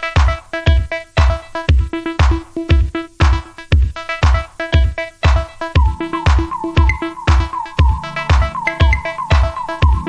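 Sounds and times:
electronic music: 0.0 - 10.0
kick drum: 0.2 - 10.0
repeating melodic notes: 5.8 - 10.0.

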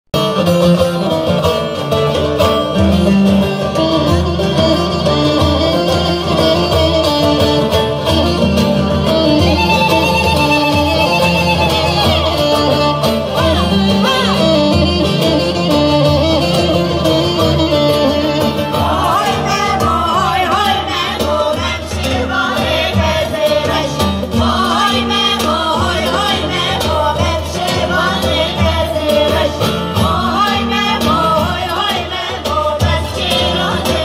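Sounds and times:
plucked saz and guitar: 0.1 - 34.0
wavering held melody: 3.5 - 20.3
frame drum beat: 4.0 - 34.0.

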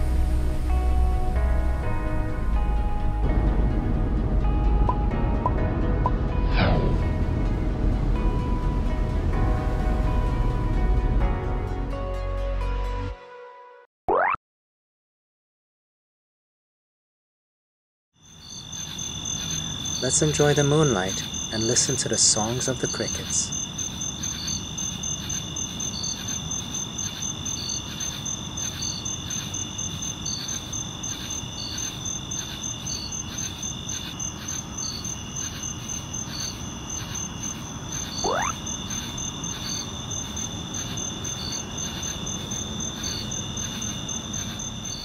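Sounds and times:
short upsweeping call: 14.1 - 14.4, 38.2 - 38.6
crickets trilling: 18.2 - 45.0
insect chirping in pulses: 18.2 - 45.0.

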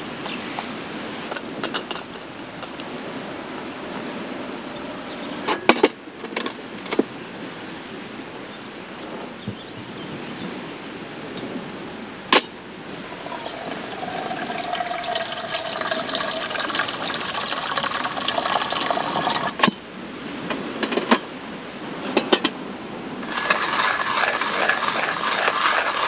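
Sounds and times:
water running into metal pot: 12.9 - 19.6, 23.2 - 26.0
hand coffee grinder grinding: 13.1 - 19.5, 23.2 - 26.0.

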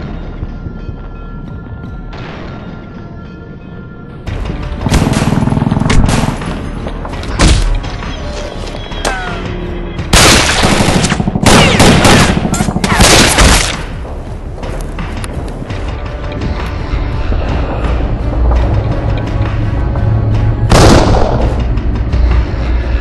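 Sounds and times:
background music: 0.0 - 23.0
loud gunshot: 20.7 - 21.5.

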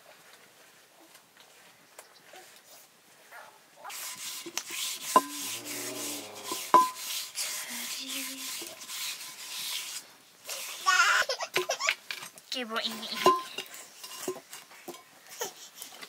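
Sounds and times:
rhythmic scraping strokes: 3.9 - 10.9.

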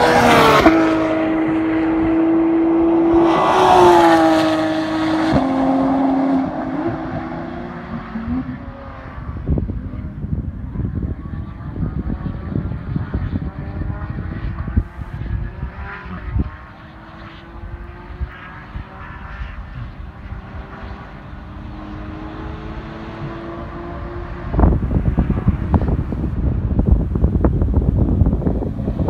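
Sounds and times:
distant sports car engine: 0.0 - 29.0
wind buffeting microphone: 0.0 - 29.0.

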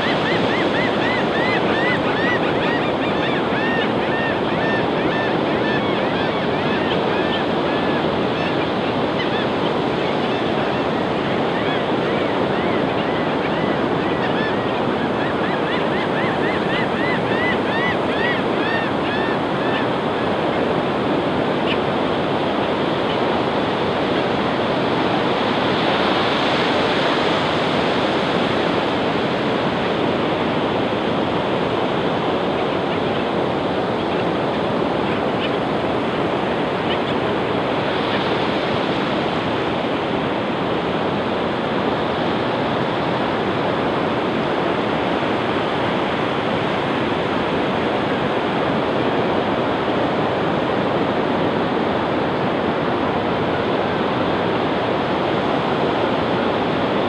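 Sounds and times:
bird calling: 0.0 - 8.6, 11.3 - 20.3
ocean waves breaking on beach: 0.0 - 57.0.

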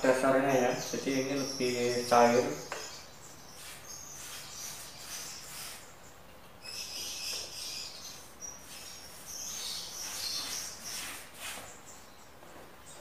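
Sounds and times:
high chirping: 0.2 - 13.0
paintbrush swishing: 3.5 - 5.9, 8.6 - 11.7.

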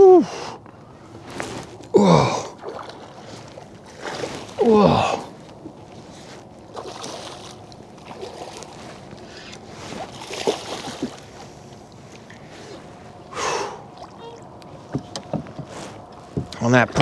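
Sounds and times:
water splashing around a kayak: 1.2 - 16.6
person breathing loudly: 13.3 - 13.9.

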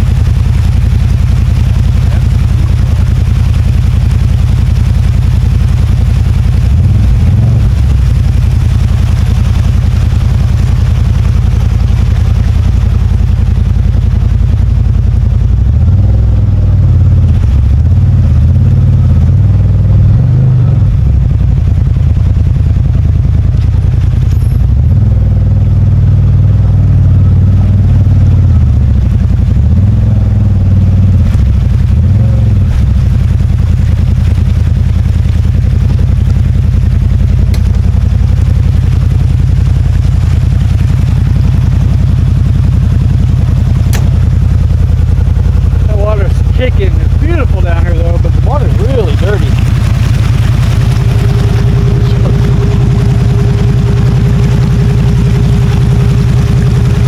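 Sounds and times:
engine revving: 5.6 - 9.1, 15.4 - 21.7, 23.6 - 34.5, 43.3 - 57.0.

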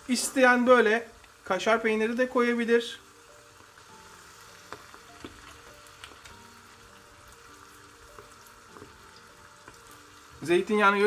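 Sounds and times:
oil sizzling in a pot: 0.0 - 11.0.

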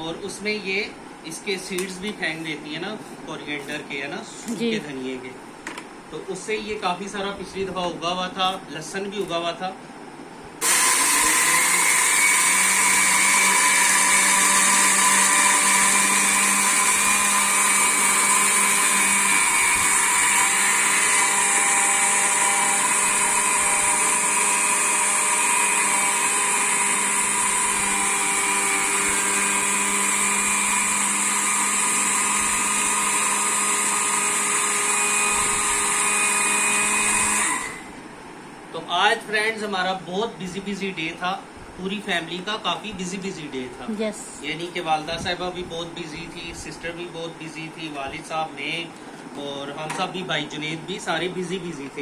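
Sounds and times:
electric spice grinder whine: 10.6 - 38.0.

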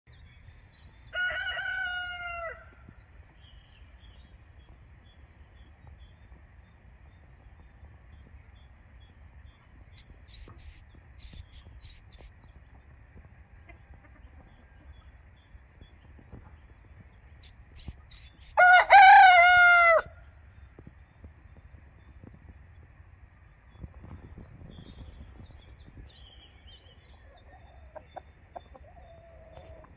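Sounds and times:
rooster crowing: 1.1 - 2.8, 18.6 - 20.1
faint hen clucking: 13.2 - 17.0, 23.8 - 29.9.

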